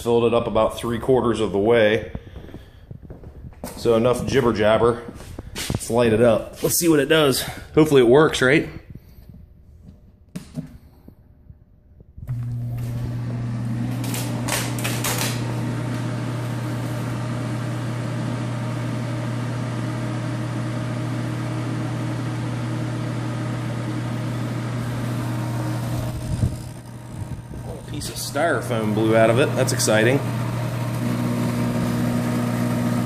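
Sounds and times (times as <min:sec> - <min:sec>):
pump grinding rattle: 0:12.3 - 0:17.4, 0:24.8 - 0:33.0
fan and pump humming: 0:12.3 - 0:33.0.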